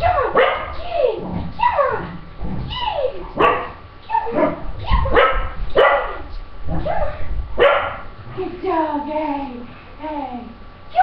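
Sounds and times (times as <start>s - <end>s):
dog barking excitedly: 0.0s - 0.8s, 3.2s - 8.1s.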